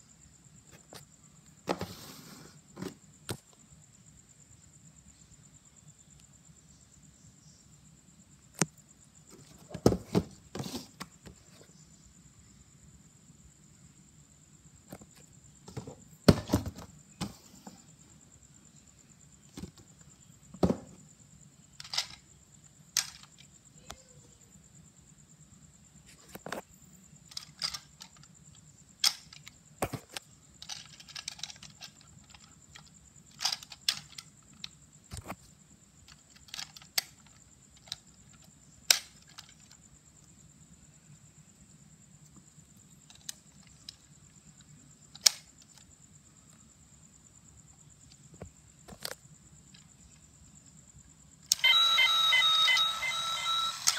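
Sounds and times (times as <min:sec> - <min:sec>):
faint high-pitched whine: 0:00.0 - 0:53.9
plastic toy clicking and knocking: 0:21.8 - 0:22.2, 0:23.0 - 0:23.5, 0:27.3 - 0:34.8, 0:36.0 - 0:39.8, 0:45.1 - 0:45.9.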